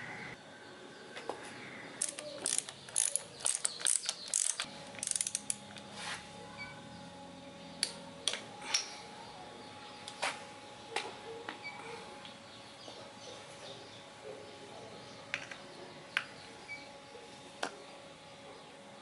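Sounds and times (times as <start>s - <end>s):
ratchet wrench clicking: 2.0s - 5.6s.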